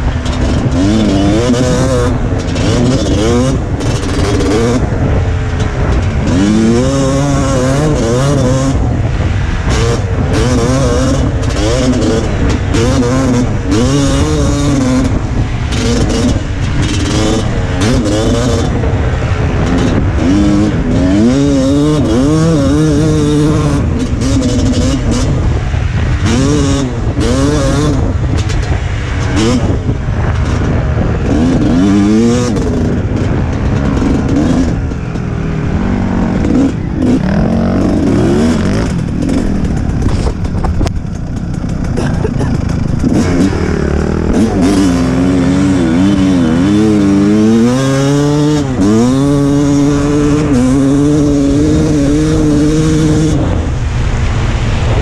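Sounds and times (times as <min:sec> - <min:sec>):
dirt bike engine revving: 0:00.0 - 0:55.0
wind noise on microphone: 0:00.0 - 0:55.0.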